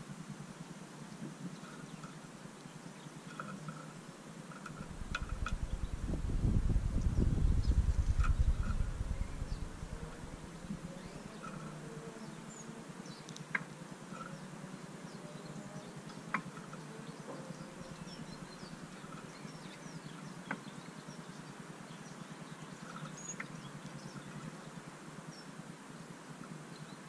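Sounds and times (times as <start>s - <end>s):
steady low hum: 4.7s - 12.6s
bird chirps: 4.8s - 11.7s.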